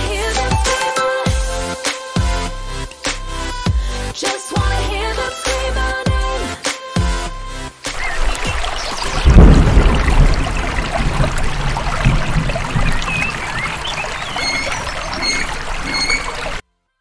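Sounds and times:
birds chirping: 7.9 - 16.6
waterfall rushing: 7.9 - 16.6
low thump: 9.2 - 13.1.

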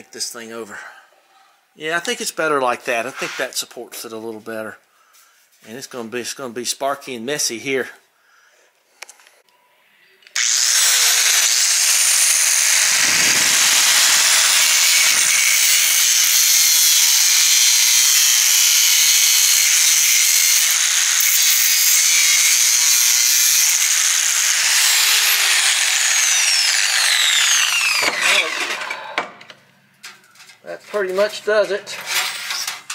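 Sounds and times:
angle grinder cutting metal pipe: 10.4 - 29.3.

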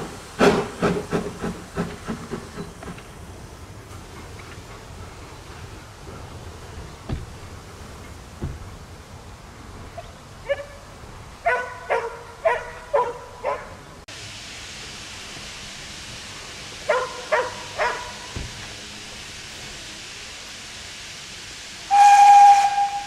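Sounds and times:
dog barking: 11.4 - 13.8, 16.9 - 18.2.

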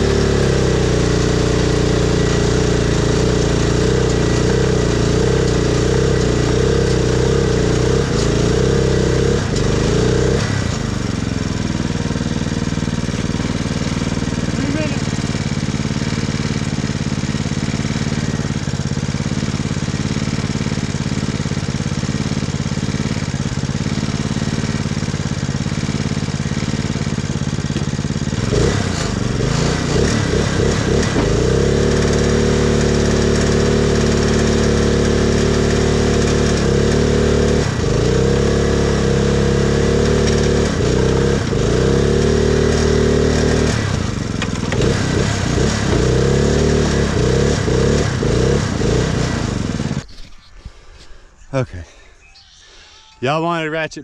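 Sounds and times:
mower engine revving: 0.0 - 50.2.

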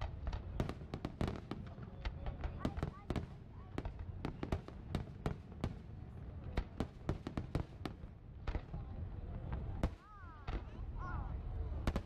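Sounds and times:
fireworks bursting: 0.0 - 5.9.

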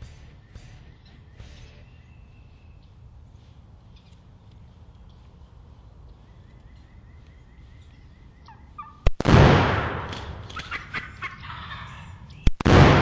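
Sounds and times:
turkey gobbling: 8.4 - 9.0, 10.4 - 12.4.

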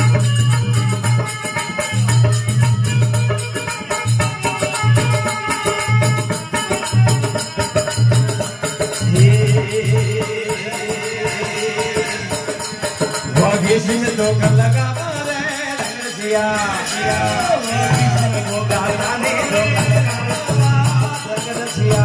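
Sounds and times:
dholak drum beating: 0.0 - 22.0
jingling percussion: 0.0 - 22.0
person singing a held line: 9.0 - 22.0.

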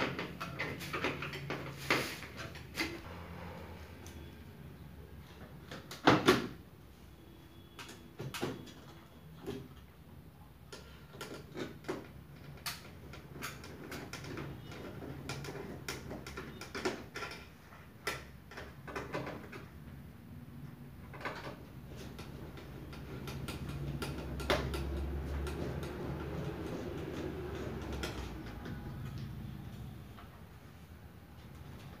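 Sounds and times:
hands clicking and knocking on parts: 0.0 - 3.0, 10.7 - 19.8, 21.0 - 29.3
low steady hum: 3.0 - 5.3.

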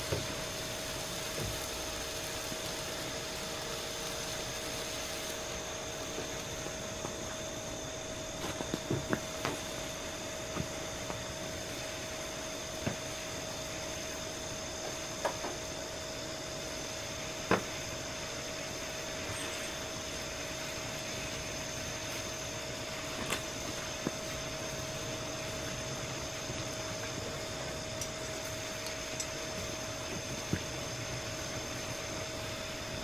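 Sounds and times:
steady mechanical hum: 0.0 - 33.0
sharp ticks and pops: 27.9 - 30.8.

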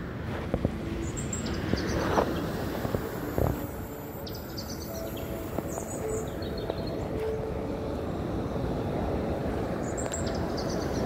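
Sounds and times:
surf rushing: 0.0 - 11.0
wind: 0.0 - 11.0
faint high chirping: 1.0 - 9.1.

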